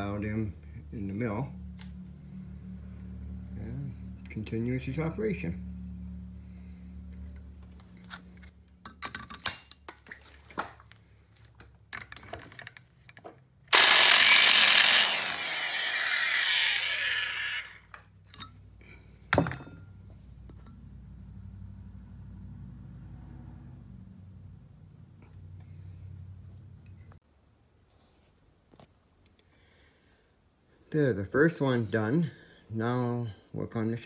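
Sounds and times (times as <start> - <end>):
valve seat grinder grinding: 13.7 - 17.9.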